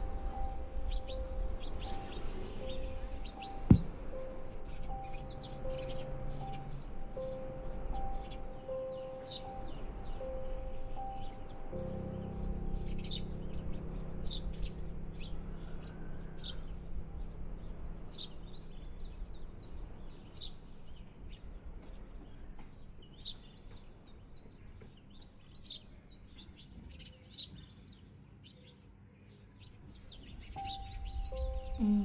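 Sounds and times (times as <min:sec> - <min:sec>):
low hum: 0:09.8 - 0:20.0
baby birds begging cheeps: 0:30.5 - 0:32.0.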